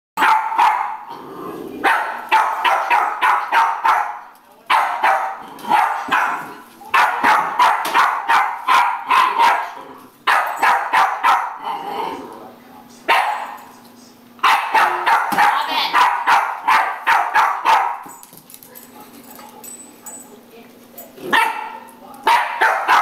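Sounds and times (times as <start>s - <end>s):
dog barking sharply: 0.2s - 1.0s, 1.8s - 6.4s, 7.0s - 9.7s, 10.3s - 11.6s, 14.4s - 18.0s, 21.3s - 23.0s.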